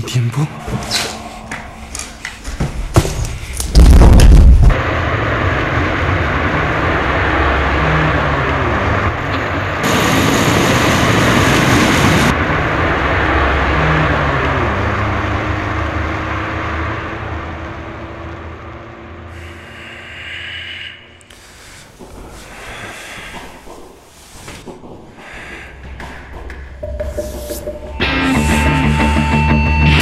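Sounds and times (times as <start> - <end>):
car road and engine noise: 4.7 - 24.2
loud hissing rush: 4.8 - 12.4.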